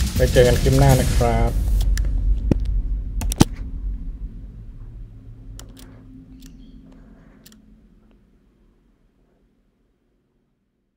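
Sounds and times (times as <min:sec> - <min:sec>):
low steady hum: 0:00.0 - 0:10.9
mouse and keyboard clicks: 0:05.6 - 0:07.6.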